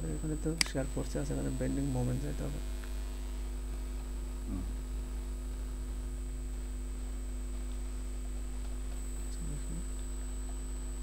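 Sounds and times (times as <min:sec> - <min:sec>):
electrical hum: 0:00.0 - 0:11.0
faint vocal sound: 0:04.4 - 0:04.8.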